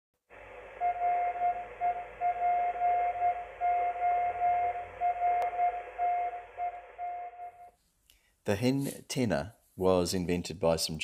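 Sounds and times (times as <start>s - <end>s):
radio hiss: 0.3s - 7.7s
morse code tone: 0.7s - 7.7s.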